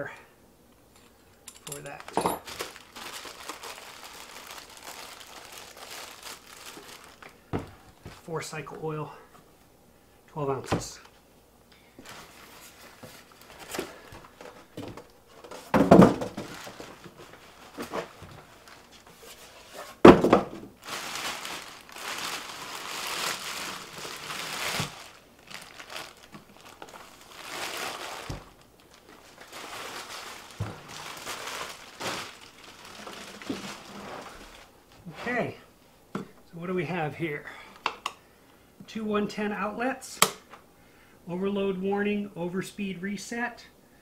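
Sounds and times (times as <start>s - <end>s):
plastic bag crinkling: 1.7s - 8.2s, 12.0s - 19.7s, 20.8s - 34.8s
styrofoam packing pulled away: 20.8s - 34.7s.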